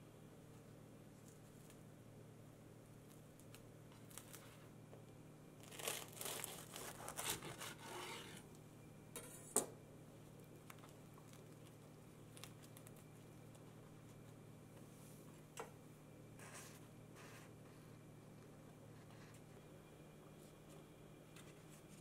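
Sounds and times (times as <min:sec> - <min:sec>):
knife sawing through toasted bread: 0:06.8 - 0:08.4.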